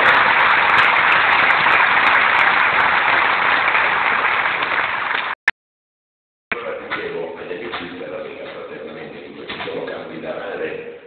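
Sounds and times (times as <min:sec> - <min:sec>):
large audience applauding: 0:00.0 - 0:05.4.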